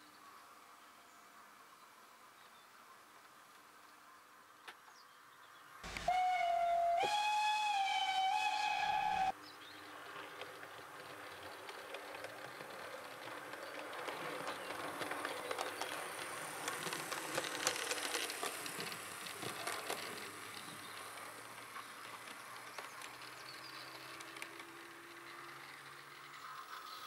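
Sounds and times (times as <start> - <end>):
model train rattling on track: 5.9 - 27.0.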